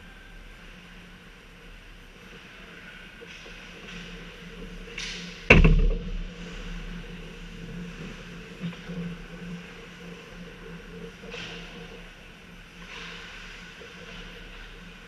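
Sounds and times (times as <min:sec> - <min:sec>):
rink hum: 0:05.5 - 0:06.9.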